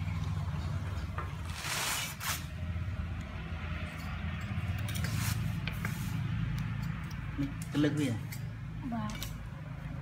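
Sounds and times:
metallic clicks and scrapes: 3.8 - 9.4.

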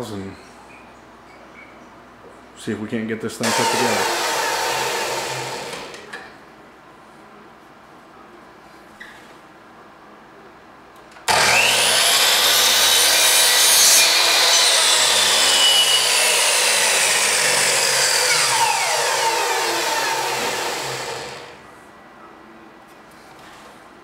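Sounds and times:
miter saw whining: 3.4 - 6.1, 11.3 - 21.6.

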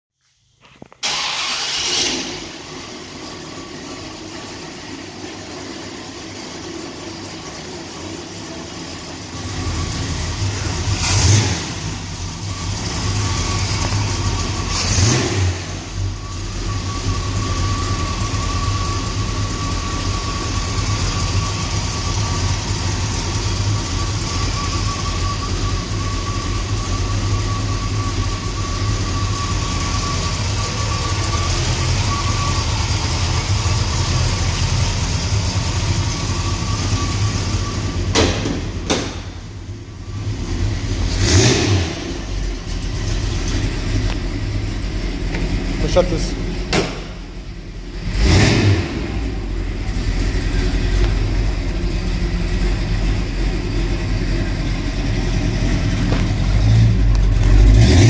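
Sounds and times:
car engine starting and idling: 0.4 - 58.0
engine revving: 9.4 - 16.4, 40.1 - 43.8, 47.9 - 50.8, 55.8 - 58.0.

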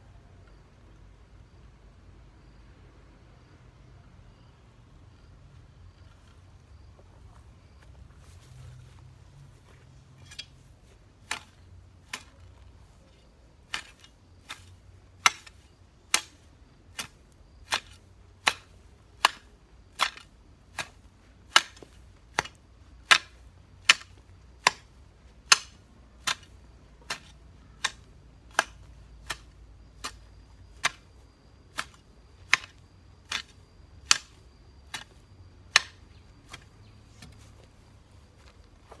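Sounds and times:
hoe chopping into ground: 9.6 - 39.0.

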